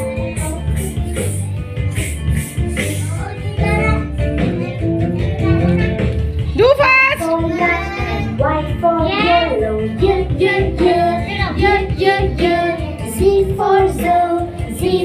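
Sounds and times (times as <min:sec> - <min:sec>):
backing music: 0:00.0 - 0:15.0
woman and children singing: 0:07.2 - 0:15.0.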